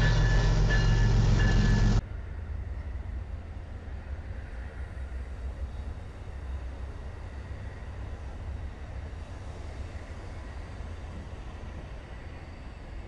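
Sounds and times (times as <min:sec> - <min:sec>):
train cars rumbling past: 0:00.0 - 0:13.0.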